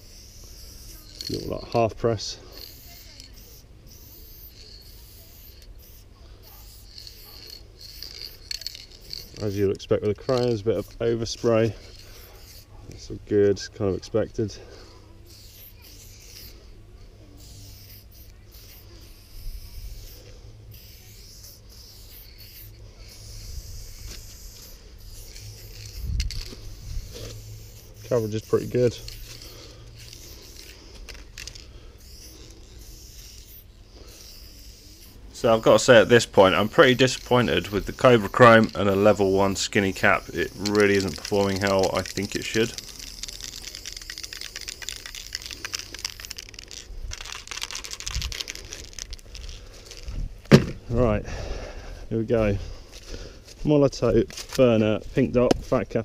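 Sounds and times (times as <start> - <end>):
aerosol spray can hissing: 0.0 - 12.7, 14.5 - 50.6
thump: 50.4 - 50.8.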